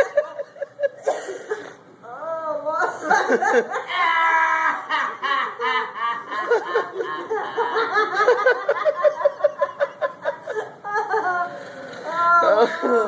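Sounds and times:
person giggling: 0:02.9 - 0:13.0.

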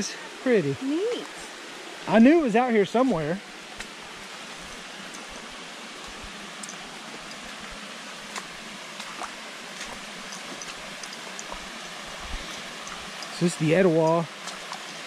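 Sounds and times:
creek rushing: 0:00.0 - 0:15.0
waterfall cascading over rocks: 0:00.0 - 0:15.0.

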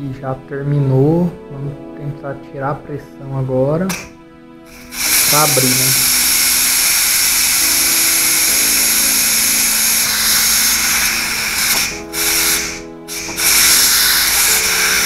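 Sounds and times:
steam hissing from valve: 0:03.9 - 0:15.0.

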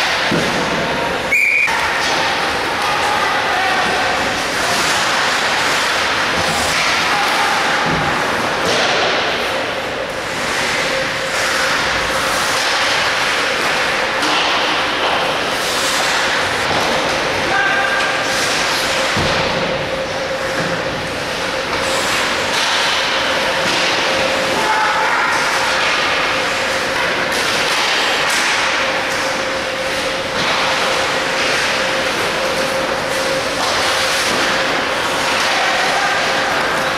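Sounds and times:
hockey sticks and puck knocking: 0:00.0 - 0:00.9, 0:01.6 - 0:09.6, 0:10.2 - 0:36.9
constant hum: 0:00.0 - 0:36.9
skates scraping ice: 0:00.0 - 0:36.9.

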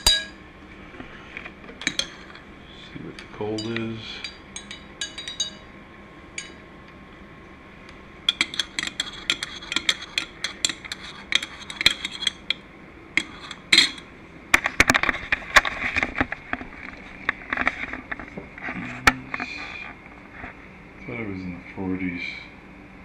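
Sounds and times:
probe scraping glass: 0:01.0 - 0:02.5, 0:08.3 - 0:12.6, 0:13.2 - 0:14.0
metal probe clinking on glass: 0:03.6 - 0:05.7, 0:06.4 - 0:06.6, 0:08.3 - 0:12.6, 0:13.2 - 0:14.0.

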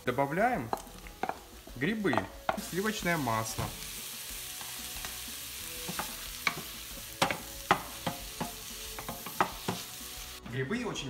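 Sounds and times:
mushrooms sizzling in butter: 0:00.0 - 0:10.4
wooden spatula knocking on pan: 0:00.7 - 0:01.5, 0:02.1 - 0:02.7, 0:05.9 - 0:09.9.

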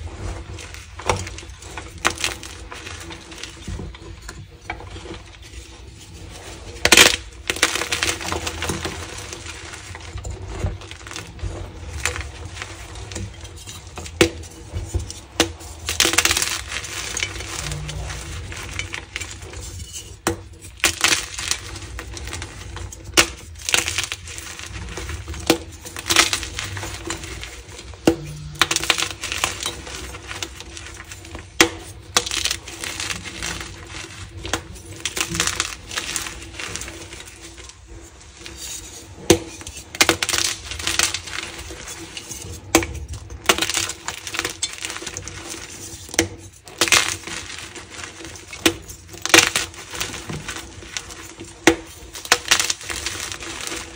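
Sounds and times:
steady crackle: 0:00.0 - 0:53.9.

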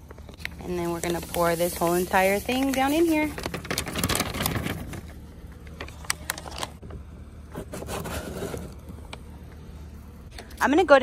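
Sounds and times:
plastic pouch crinkling: 0:00.1 - 0:05.1.

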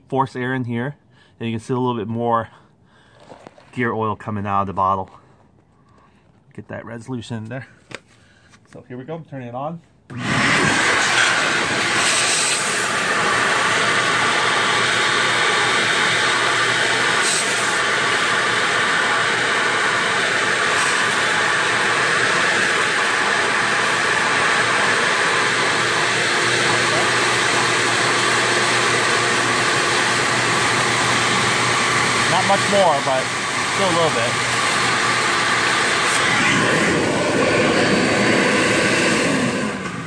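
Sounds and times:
shop vac blowing air: 0:10.1 - 0:40.0.

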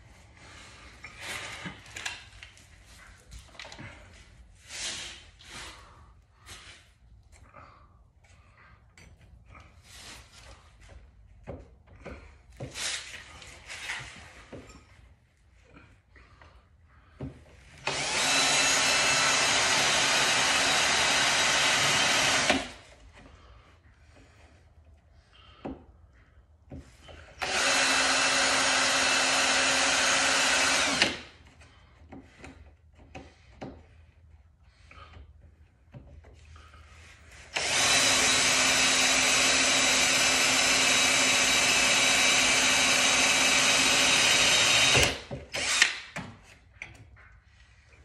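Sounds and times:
electric power tool running: 0:17.8 - 0:22.8, 0:27.4 - 0:31.3, 0:37.5 - 0:46.1.

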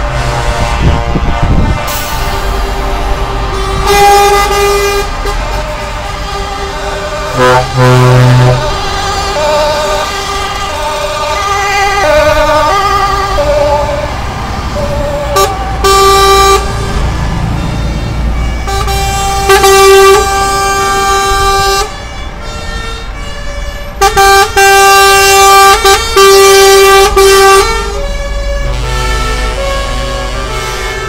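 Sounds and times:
truck air horn blasts: 0:00.0 - 0:14.1, 0:14.7 - 0:31.0
diesel trucks rumbling past: 0:00.0 - 0:31.0
wavering siren: 0:00.2 - 0:23.9.

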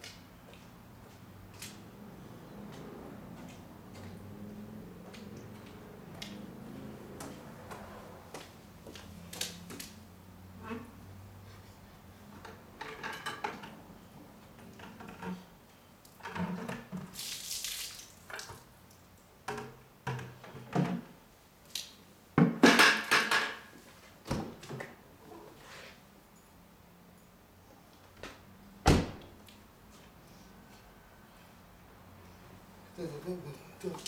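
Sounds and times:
water sloshing and splashing: 0:17.0 - 0:18.7
hissing water pour: 0:17.1 - 0:18.3.

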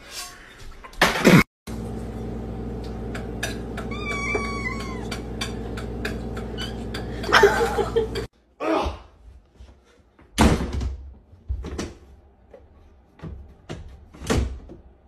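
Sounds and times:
cat meowing: 0:03.8 - 0:05.2.

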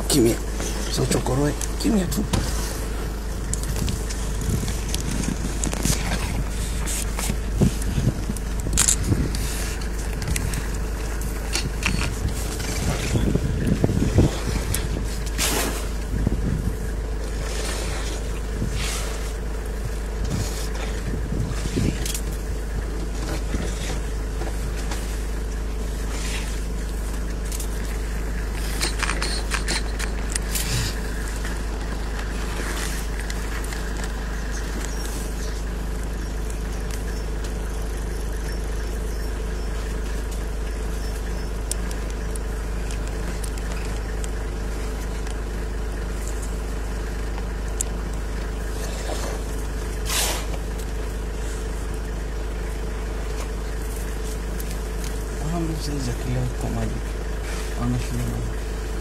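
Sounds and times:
vehicle engine idling: 0:00.0 - 0:59.0.

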